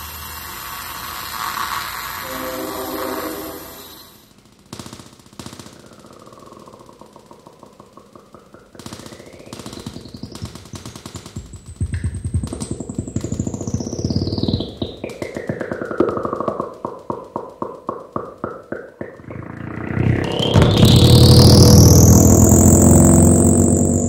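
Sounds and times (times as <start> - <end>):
rapid crackling clicks: 4.2 - 24.0
dense electronic buzzing: 19.2 - 24.0
low rumble: 19.2 - 24.0.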